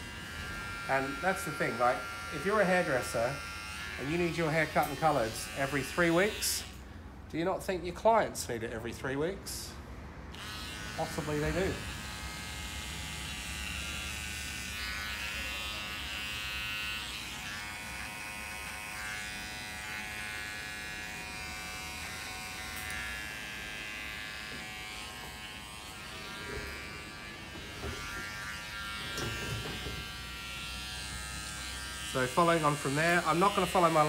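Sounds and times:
hair trimmer buzzing: 0:00.0 - 0:06.8, 0:10.3 - 0:34.0.

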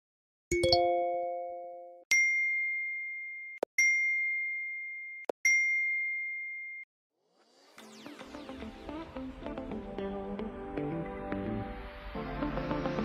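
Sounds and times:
multi-tone notification chime: 0:00.5 - 0:02.0
high single-tone dings: 0:00.5 - 0:06.9.

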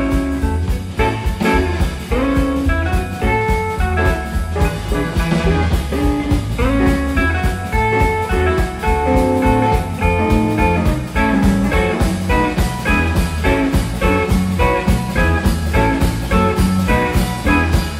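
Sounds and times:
bass guitar: 0:00.0 - 0:17.9
drum kit steady beat: 0:00.0 - 0:17.9
electric guitar melody: 0:00.0 - 0:17.9.

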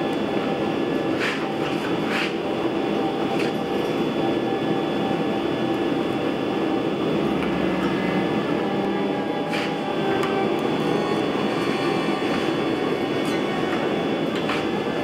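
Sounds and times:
machinery rushing with hum: 0:00.0 - 0:15.0
steel scraping: 0:09.4 - 0:12.6.

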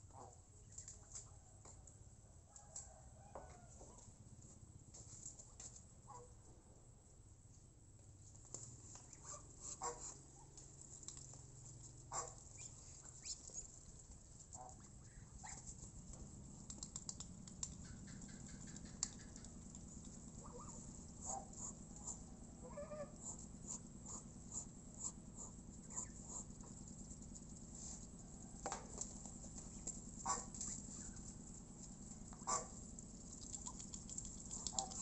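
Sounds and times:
ducks and geese foraging clicks: 0:08.9 - 0:35.0
quiet bird calls: 0:17.7 - 0:26.5.

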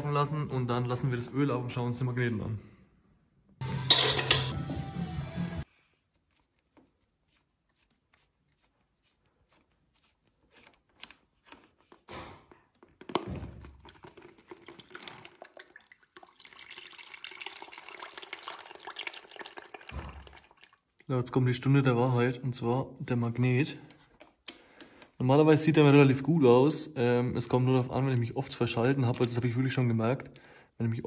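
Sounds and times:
faint clicks and handling: 0:10.4 - 0:12.1, 0:23.2 - 0:25.2
oil pouring into metal bowl: 0:13.3 - 0:21.0.

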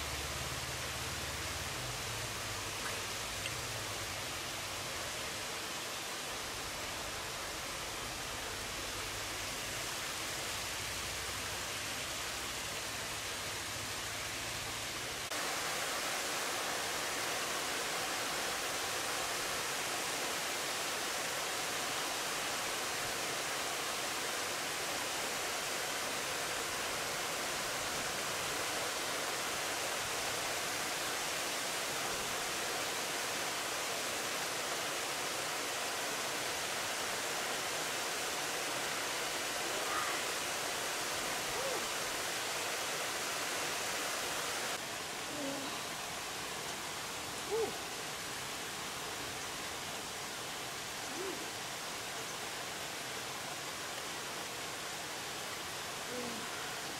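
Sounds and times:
waterfall rushing: 0:00.0 - 0:56.9.

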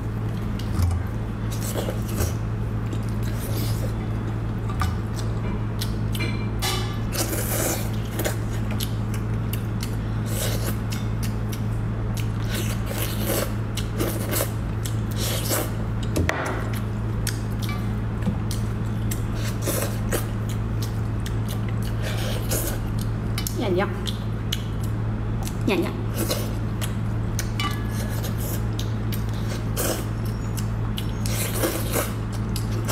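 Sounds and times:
wet chewing and squishing: 0:07.2 - 0:25.6, 0:26.2 - 0:32.9.

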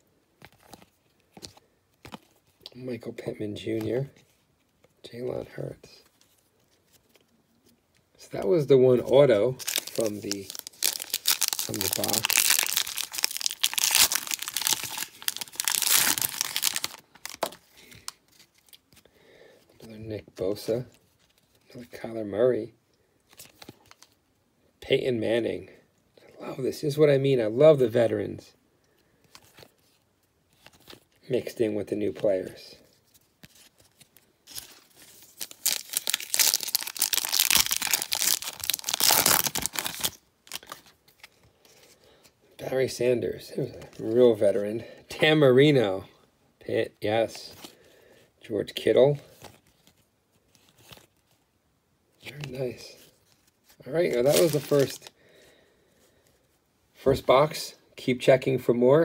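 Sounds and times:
foil wrapper crinkling and tearing: 0:09.6 - 0:18.9, 0:33.5 - 0:41.3, 0:53.2 - 0:55.2.

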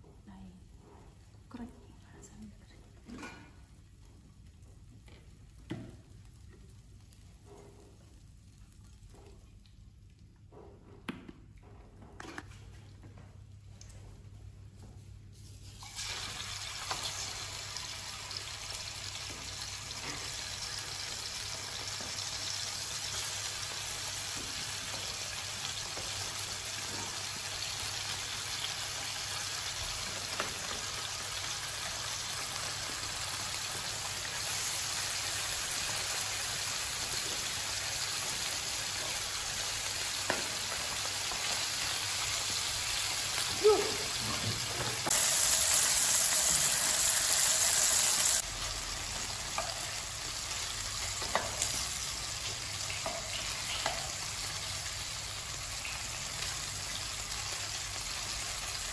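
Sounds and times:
food sizzling in hot oil: 0:15.4 - 0:58.9.

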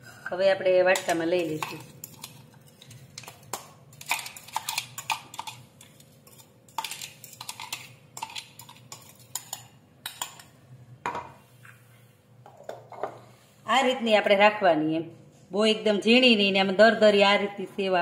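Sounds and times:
metal spoon scraping steel jar: 0:00.9 - 0:10.4.

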